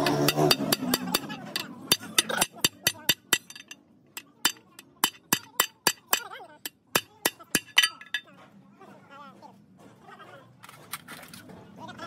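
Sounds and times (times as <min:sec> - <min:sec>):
hammer striking steel punch: 0:00.0 - 0:08.2.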